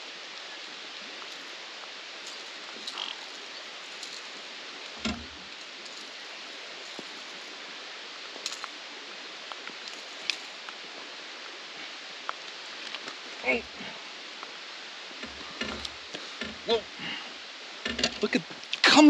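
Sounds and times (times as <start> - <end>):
rain falling on river: 0.0 - 19.0
dull thump: 5.0 - 5.4.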